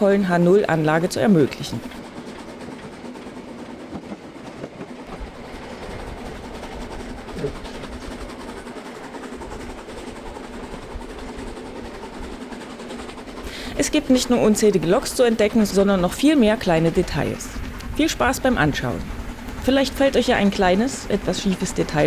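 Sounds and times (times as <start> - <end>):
model train hum: 0.0 - 22.0
wheels clicking on track: 0.0 - 22.0.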